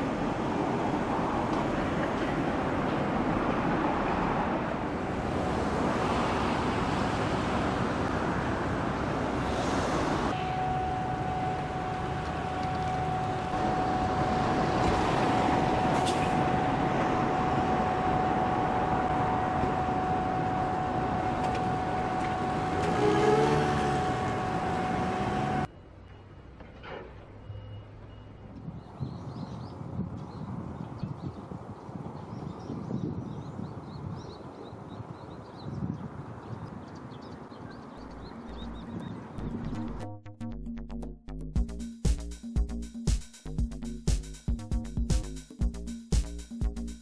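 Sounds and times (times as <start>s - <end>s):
steady high whine: 10.3s - 23.0s
heavy construction machinery running: 10.3s - 28.3s.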